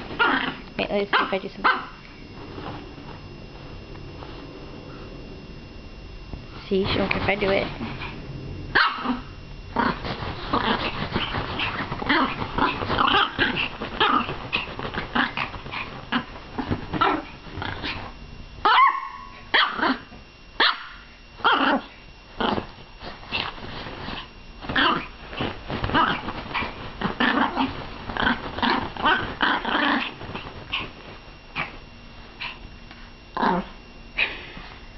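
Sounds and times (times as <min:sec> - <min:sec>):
dog growling and barking: 0:00.0 - 0:05.1, 0:07.6 - 0:31.8, 0:33.3 - 0:34.4
dog yipping: 0:01.1 - 0:02.0, 0:08.8 - 0:09.2, 0:18.6 - 0:20.0, 0:20.6 - 0:21.8.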